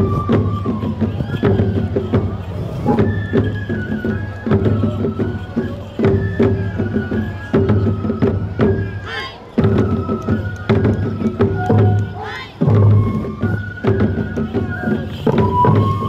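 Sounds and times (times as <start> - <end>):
bamboo flute melody: 0.0 - 16.0
taiko drum strikes: 15.2 - 16.0.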